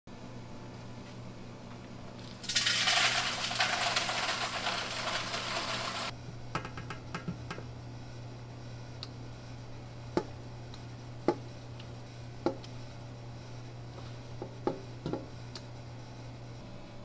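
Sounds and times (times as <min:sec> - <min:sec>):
dough mixer humming: 0:02.4 - 0:06.2.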